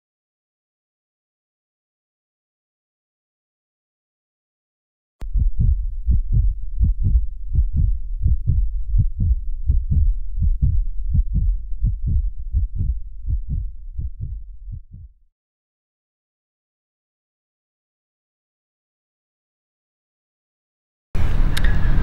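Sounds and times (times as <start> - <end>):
heartbeat thuds: 5.2 - 15.2.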